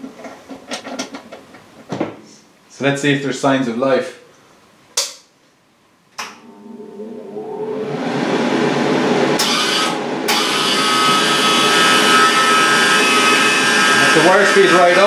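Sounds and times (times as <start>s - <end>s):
wire-feed motor whirring: 6.4s - 15.0s.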